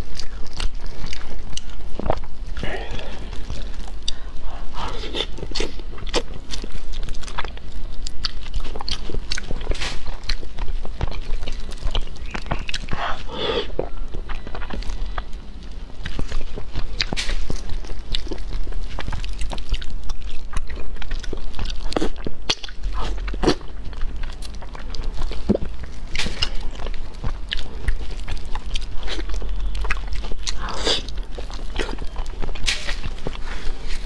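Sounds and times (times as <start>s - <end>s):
person chewing food: 0.0s - 34.0s.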